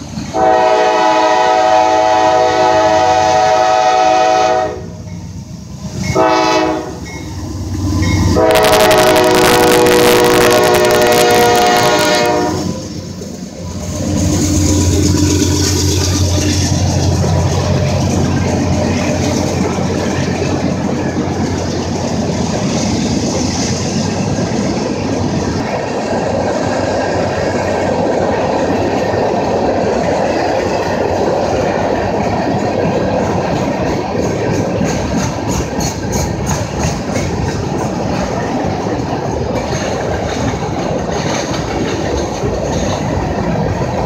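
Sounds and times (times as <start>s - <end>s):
locomotive engine drone: 0.0s - 44.0s
train wheels rolling on rails: 0.0s - 44.0s
train horn: 0.3s - 5.0s, 6.1s - 7.1s, 8.2s - 12.9s.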